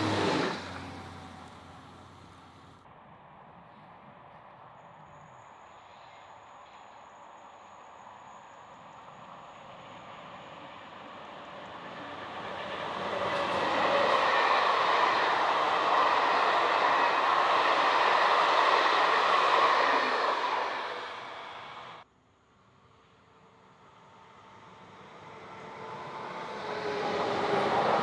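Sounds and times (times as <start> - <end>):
train wheels rolling on rail: 6.7 - 22.0, 25.3 - 28.0.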